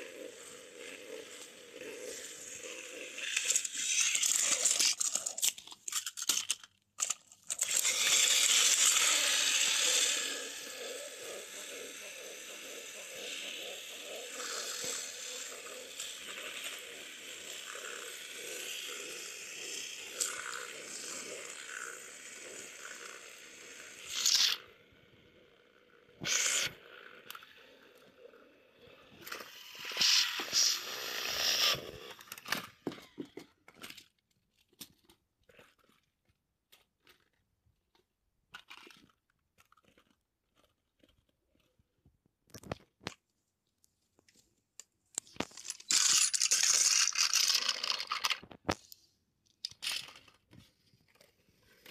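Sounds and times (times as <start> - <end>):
toy train motors whirring: 0.0 - 36.0, 38.5 - 41.3, 44.8 - 51.9
plastic toy trains clattering: 0.2 - 24.6, 29.2 - 36.1, 38.5 - 41.7, 45.2 - 49.0, 49.6 - 51.9
small clicks: 3.2 - 10.2, 43.8 - 51.9.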